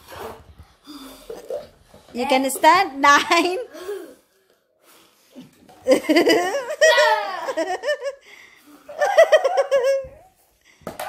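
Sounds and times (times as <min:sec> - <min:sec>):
young children laughing: 0:05.9 - 0:08.2, 0:08.9 - 0:10.3.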